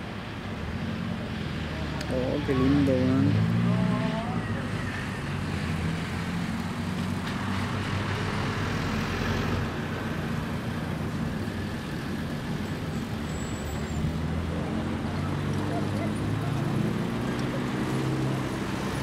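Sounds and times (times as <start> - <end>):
outdoor traffic noise: 0.0 - 19.0.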